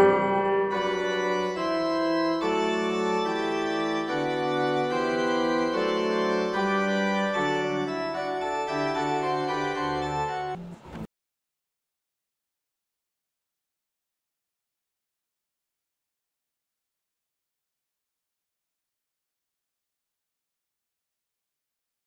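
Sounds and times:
music of held slow chords: 0.0s - 11.1s.

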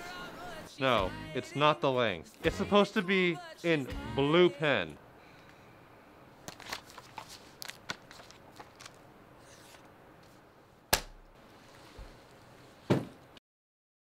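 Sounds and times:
paper pages rustling: 6.4s - 10.4s.

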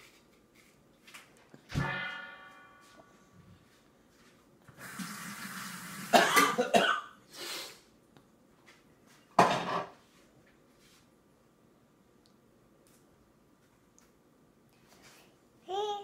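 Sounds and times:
person coughing: 6.2s - 7.2s.

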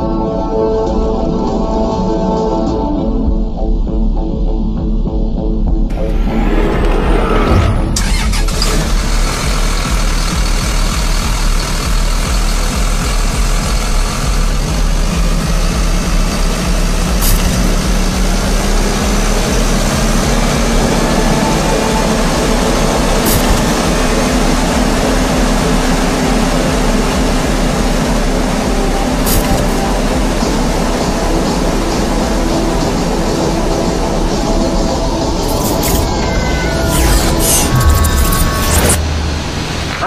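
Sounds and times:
diesel engine starting and running: 4.6s - 40.0s.

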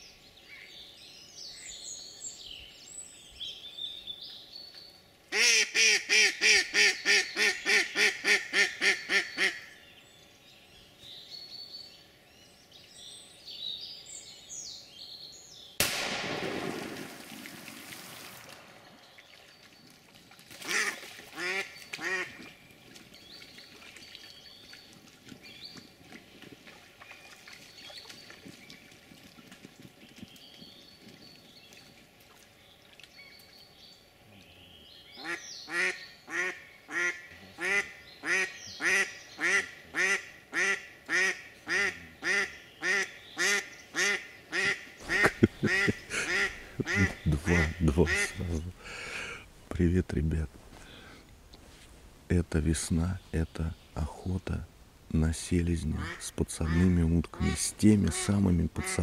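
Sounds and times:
sudden loud bang: 15.8s - 17.1s
small birds chirping: 18.8s - 59.0s
duck quacking: 20.7s - 22.4s, 35.2s - 48.6s, 56.0s - 59.0s.

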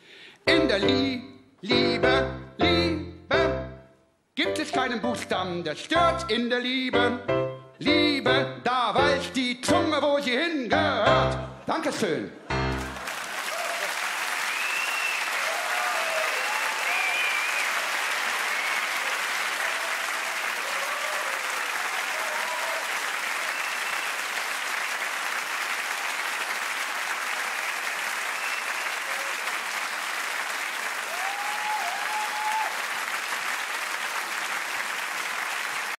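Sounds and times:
audience applauding: 12.6s - 35.9s.

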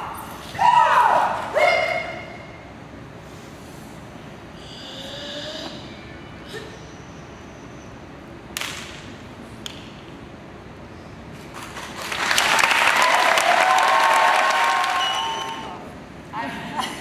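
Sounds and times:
audience applauding: 11.6s - 15.7s.

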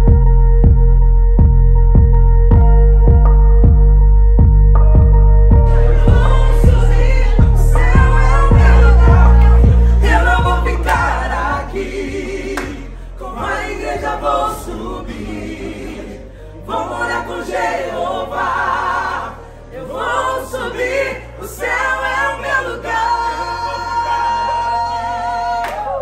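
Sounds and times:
group singing gospel song: 5.6s - 26.0s.

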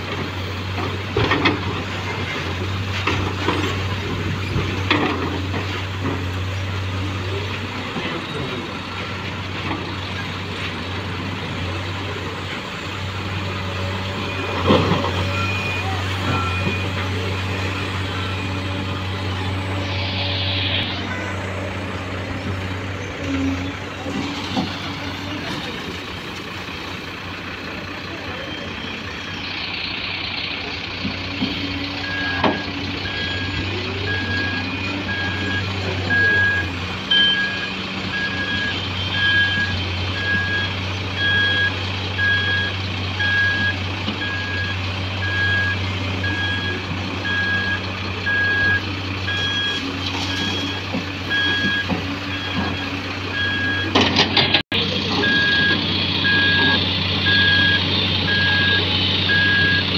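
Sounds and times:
diesel engines running: 0.0s - 59.9s
back-up alarm beeping: 32.0s - 54.0s, 55.2s - 59.9s.

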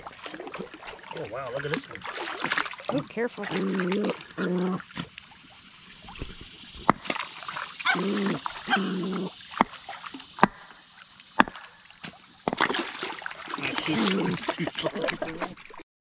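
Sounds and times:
sharp knocks: 10.4s - 10.7s, 11.4s - 11.6s.

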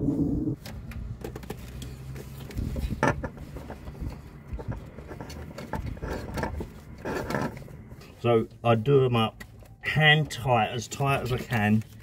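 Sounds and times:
oil filter clicking and scraping: 0.6s - 8.6s.

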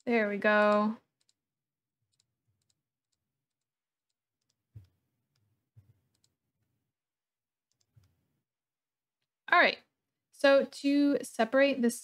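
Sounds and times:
computer mouse clicks: 6.1s - 6.4s, 7.7s - 8.2s.

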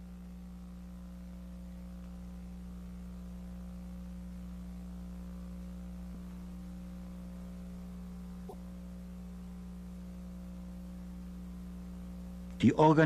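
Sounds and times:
low electrical hum: 0.0s - 13.0s
faint tick: 1.9s - 2.3s.

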